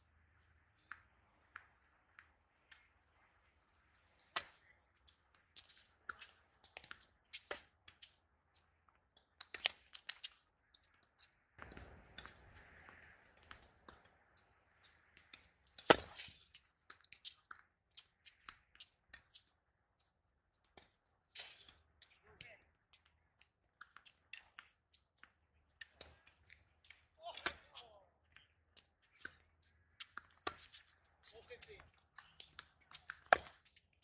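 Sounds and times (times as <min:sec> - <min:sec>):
racquets hitting tennis ball: 0:29.2 - 0:33.7.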